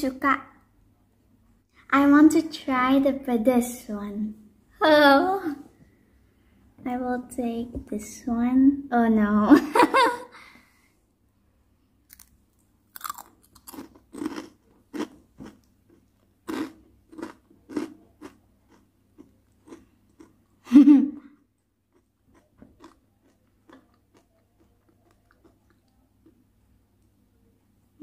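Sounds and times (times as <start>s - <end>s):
crunching and chewing crackers: 12.1s - 20.6s, 21.4s - 27.1s.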